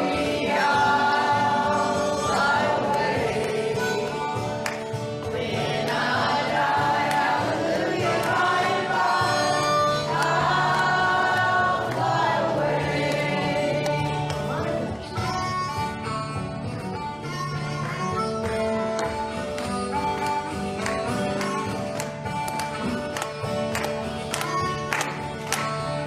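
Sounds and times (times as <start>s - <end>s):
group singing worship song: 0.0s - 4.6s, 5.2s - 14.9s.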